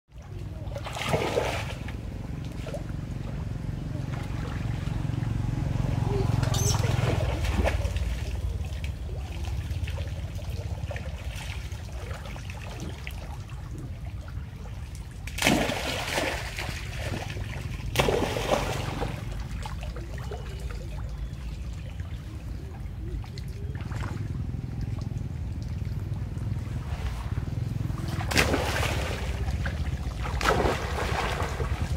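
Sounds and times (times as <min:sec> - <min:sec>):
water trickling and lapping: 0:00.1 - 0:31.9
loud splashes: 0:00.8 - 0:01.9, 0:04.1 - 0:13.6, 0:15.2 - 0:20.4, 0:26.5 - 0:31.9
steady low rumble: 0:20.8 - 0:31.9.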